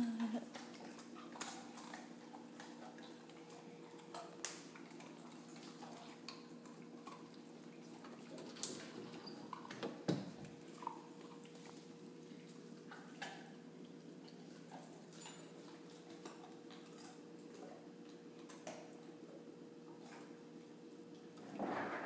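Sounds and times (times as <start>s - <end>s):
faint steady hum: 0.0s - 21.5s.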